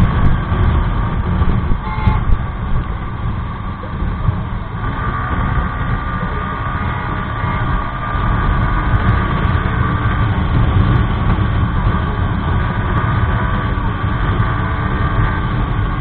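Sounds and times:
motorcycle engine running: 0.0 - 16.0
wind buffeting camera: 0.0 - 16.0.

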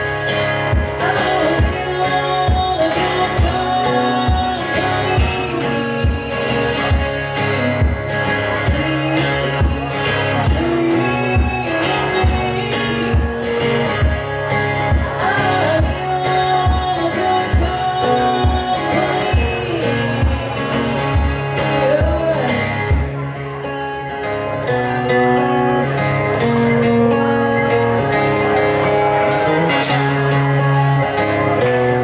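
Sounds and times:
acoustic guitar strumming: 0.0 - 32.0
person singing: 0.6 - 14.2, 14.8 - 23.5.

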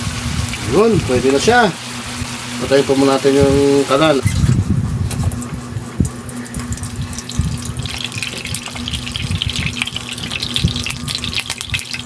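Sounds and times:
oil crackling sizzle: 0.0 - 4.2, 5.4 - 12.0
oil pouring into frying pan: 6.8 - 12.0.

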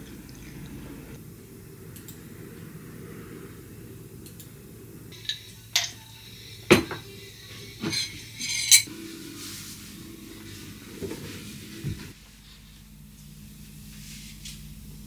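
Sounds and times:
faint steady hum: 0.0 - 15.0
tableware clinking on wooden desk: 7.8 - 8.9.

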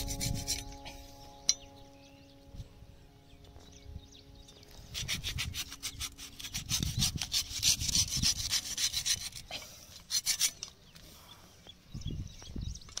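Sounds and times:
knife scraping fruit husk: 0.0 - 1.0, 4.8 - 10.8.

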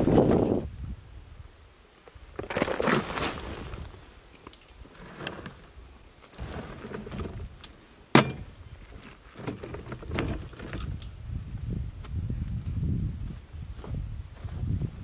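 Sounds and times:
cart rattling over gravel: 2.4 - 11.1
cart bed clunking onto frame: 8.2 - 8.5
footsteps: 12.0 - 14.9.

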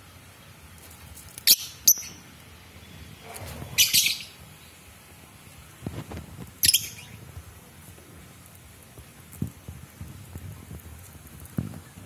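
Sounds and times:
lovebirds chirping: 1.4 - 5.0, 6.6 - 7.2.

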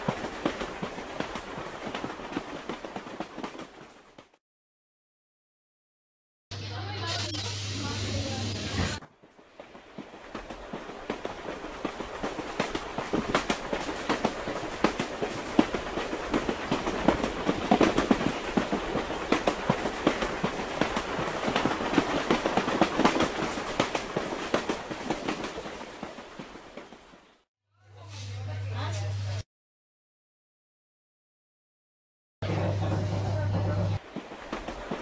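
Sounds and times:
train rumble: 7.8 - 27.2, 32.4 - 35.0
train wheels clattering: 9.1 - 26.9.

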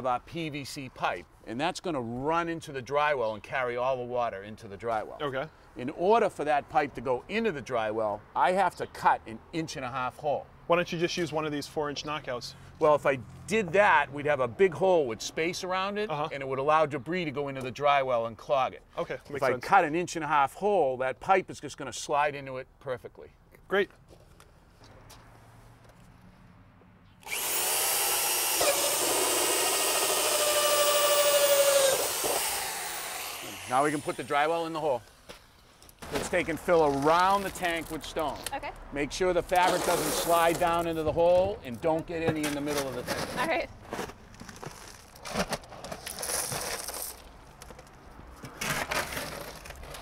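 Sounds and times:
drill with hole saw cutting plastic: 27.2 - 34.8
shovel scraping crushed stone: 39.5 - 40.8, 42.6 - 47.3, 48.6 - 50.0.

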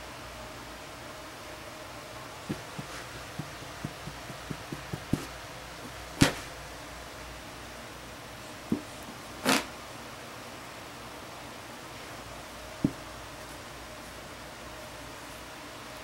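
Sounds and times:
animal feet tapping on carpet: 2.5 - 5.3.

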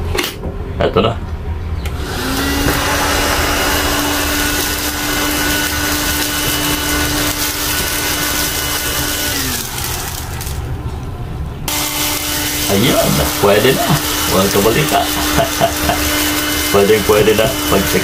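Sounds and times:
vacuum cleaner switch: 1.9 - 10.5
vacuum cleaner motor whine: 1.9 - 10.7, 11.7 - 18.0.

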